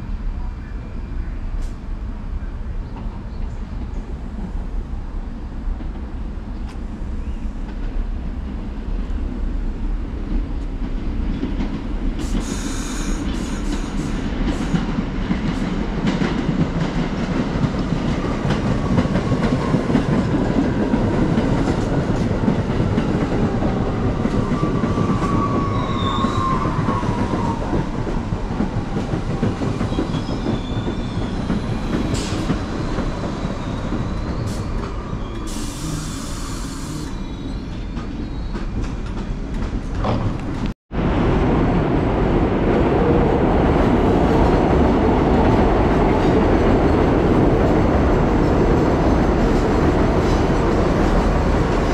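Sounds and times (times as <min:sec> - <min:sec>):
subway train wheels clacking: 0:00.0 - 0:51.9
short falling squeal: 0:25.2 - 0:26.8, 0:33.5 - 0:38.8.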